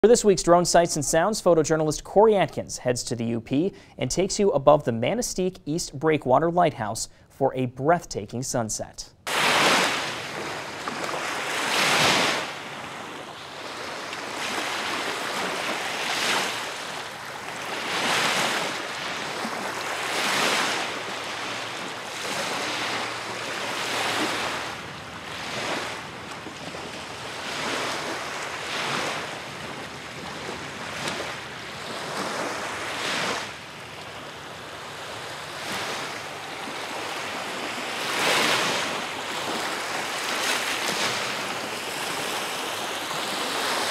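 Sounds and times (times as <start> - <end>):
wind: 0.0 - 43.9
lake waves washing in: 9.3 - 43.9.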